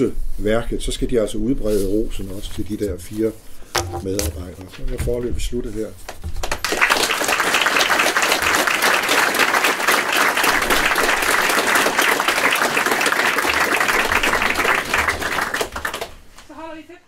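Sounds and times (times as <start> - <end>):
audience applauding: 6.4 - 16.2.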